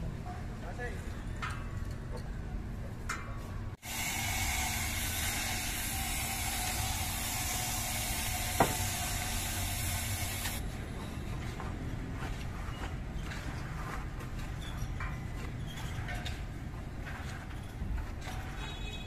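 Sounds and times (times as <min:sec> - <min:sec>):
loud even hiss: 0:03.8 - 0:10.6.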